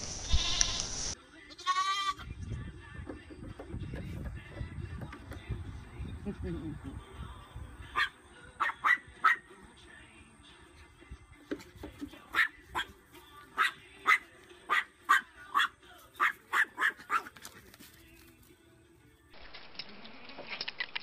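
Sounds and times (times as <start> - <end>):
small dog yapping: 13.6 - 17.4.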